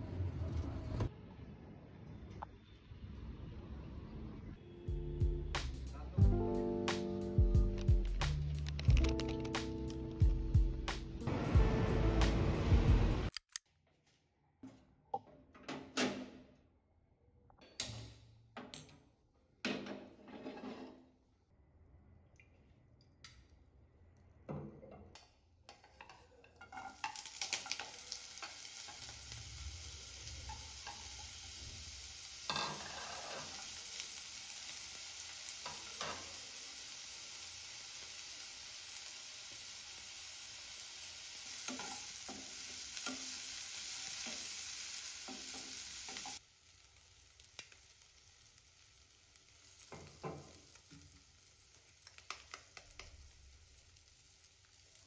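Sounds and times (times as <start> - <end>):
wooden spatula knocking and scraping: 19.6 - 21.0
sausage sizzling in oil: 25.7 - 55.0.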